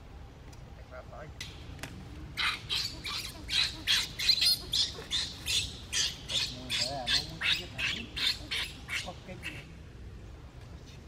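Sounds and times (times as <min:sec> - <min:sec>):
baby monkey screaming: 0:02.4 - 0:09.7.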